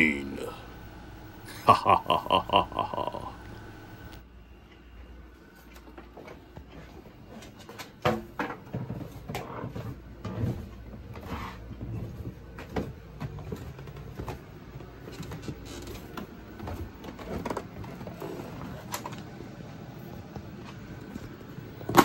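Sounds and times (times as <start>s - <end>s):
footfalls on carpeted stairs: 6.2s - 17.9s
vacuum cleaner bumping and rattling: 21.8s - 22.0s.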